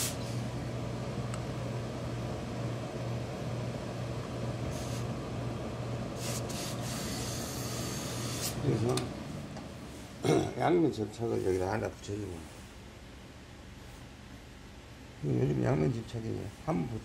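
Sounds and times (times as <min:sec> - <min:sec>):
steam iron hissing: 0:00.0 - 0:00.4, 0:04.7 - 0:05.2, 0:06.1 - 0:08.7
steady low hum: 0:00.0 - 0:17.0.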